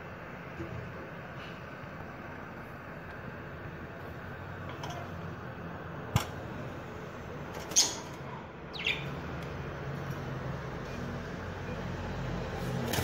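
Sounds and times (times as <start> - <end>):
low background noise: 0.0 - 13.0
budgerigar chirps: 8.7 - 9.1.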